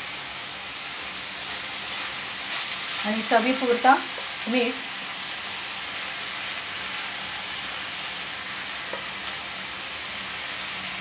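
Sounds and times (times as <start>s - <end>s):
vegetables sizzling in oil: 0.0s - 11.0s.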